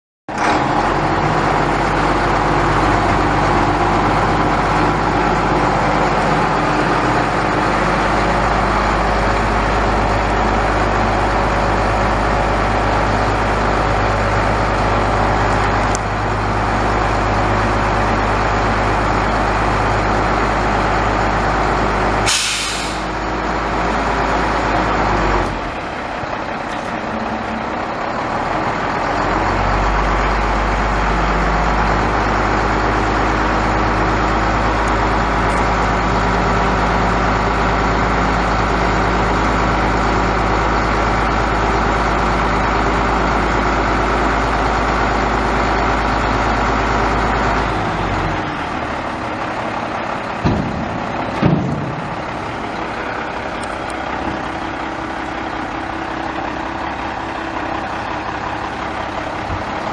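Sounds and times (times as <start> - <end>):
diesel engine idling: 0.3 - 59.9
air brake hiss: 22.3 - 23.2.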